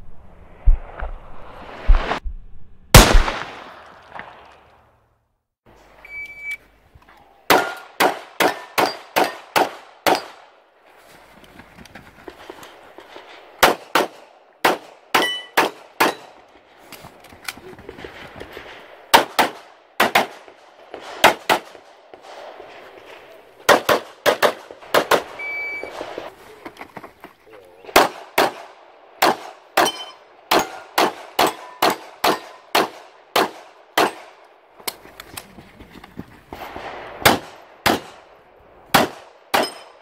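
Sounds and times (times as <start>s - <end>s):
pistol firing rapidly: 3.0s - 3.6s, 7.5s - 10.4s, 19.1s - 20.5s, 23.7s - 25.4s, 28.0s - 34.3s, 39.0s - 39.7s.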